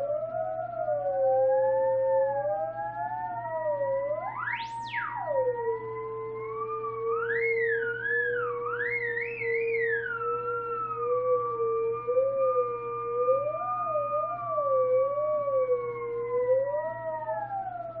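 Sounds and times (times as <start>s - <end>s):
theremin gliding tones: 0.0s - 18.0s.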